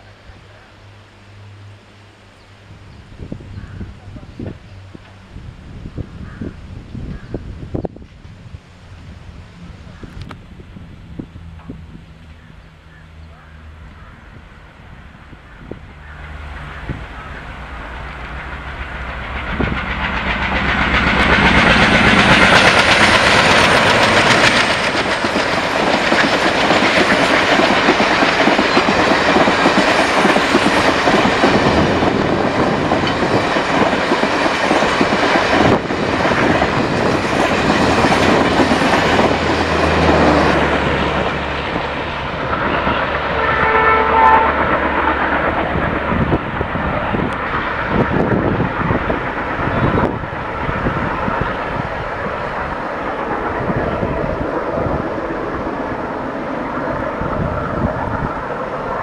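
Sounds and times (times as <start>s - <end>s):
diesel locomotives running hard: 0.0s - 59.0s
coaches clattering over rail joints: 16.6s - 43.3s
train horn: 42.7s - 45.3s.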